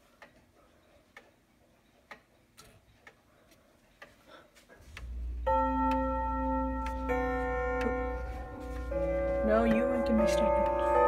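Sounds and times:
clock ticking softly: 0.0s - 11.0s
low rumble: 4.8s - 7.3s
clock chime rod ringing: 4.8s - 11.0s.

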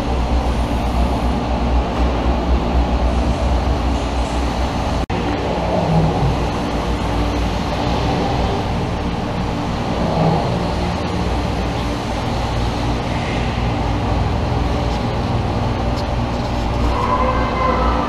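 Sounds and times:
deep rumbling background noise: 0.0s - 18.0s.

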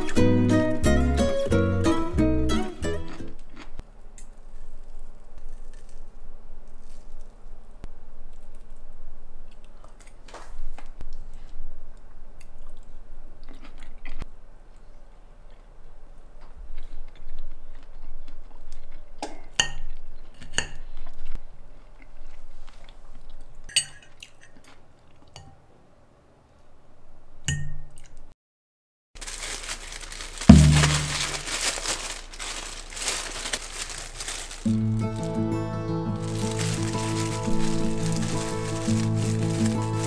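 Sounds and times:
cutlery clinking against dishes: 23.7s - 24.6s
heavy thump: 30.5s - 31.4s.

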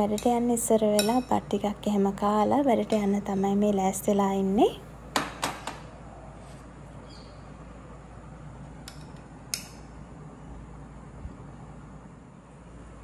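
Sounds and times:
metal spoon clinking on ceramic: 0.1s - 1.4s.

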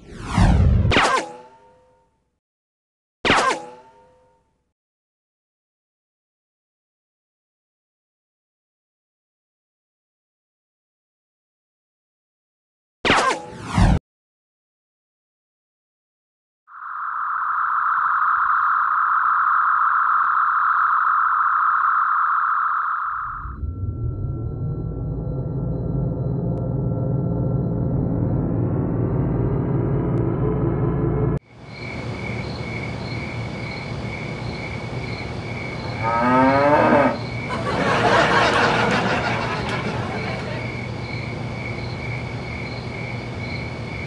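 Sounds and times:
steady high tone: 16.7s - 31.4s.

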